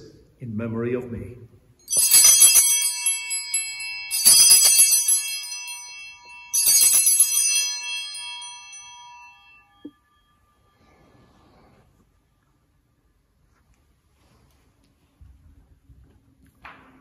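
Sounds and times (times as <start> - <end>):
altar bells jangling: 1.8 - 11.3.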